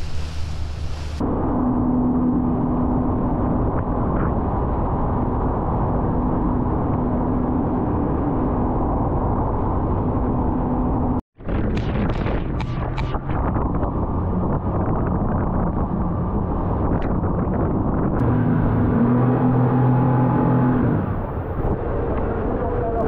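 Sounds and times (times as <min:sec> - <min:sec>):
noisy rush with hissing: 0:00.0 - 0:01.6
engine running: 0:09.6 - 0:22.5.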